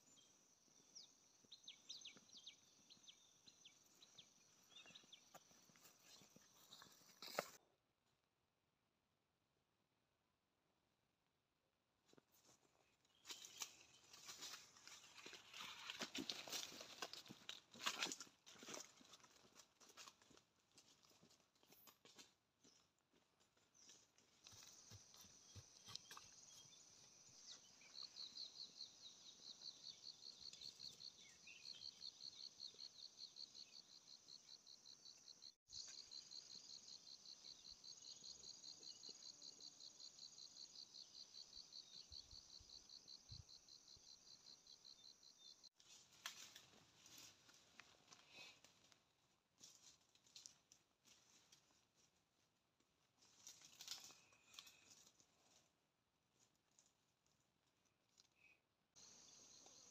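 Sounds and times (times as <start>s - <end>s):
insects chirping: 0.0s - 7.6s, 24.4s - 45.8s, 59.0s - 59.9s
rustling of dry leaf litter: 13.2s - 20.1s.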